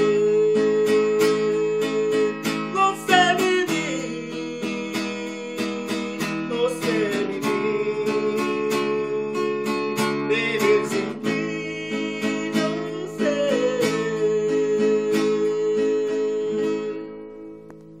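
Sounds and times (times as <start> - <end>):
man singing long note: 0.0 - 9.5
acoustic guitar strumming: 0.0 - 18.0.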